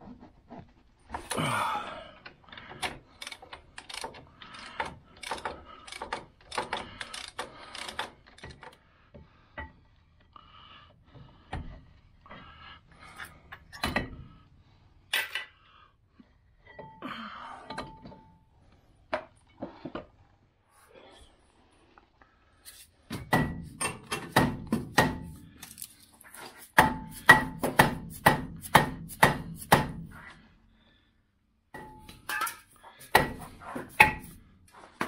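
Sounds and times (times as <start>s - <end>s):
hand ratchet clicking: 2.8s - 8.7s
metallic clunks and knocks: 13.7s - 14.4s, 23.1s - 25.3s.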